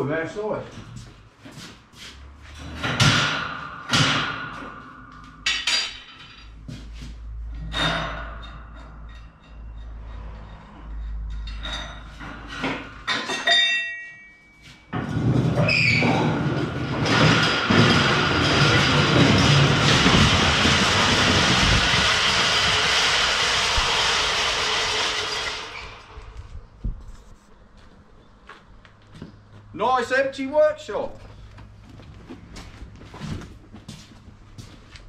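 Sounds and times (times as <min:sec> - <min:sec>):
metal piece ringing: 0:13.0 - 0:15.0
steel bench rolling on concrete: 0:14.9 - 0:26.6
metal pieces clanking on grating: 0:15.0 - 0:26.1.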